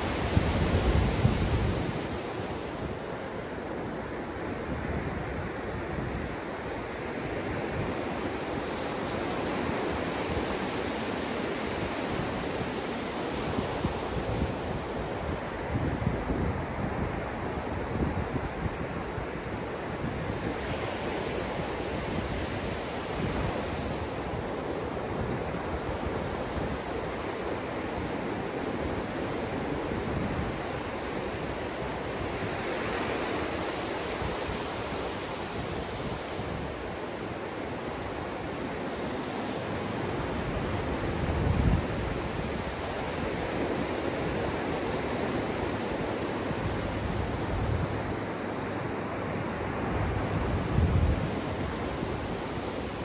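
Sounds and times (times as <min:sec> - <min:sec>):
wind rumble on microphone: 0:00.0 - 0:53.0.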